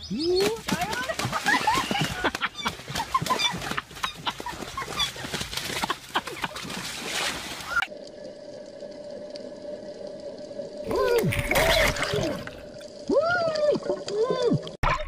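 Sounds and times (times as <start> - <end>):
wings flapping: 0.3 - 7.8
swan calls: 1.6 - 5.4.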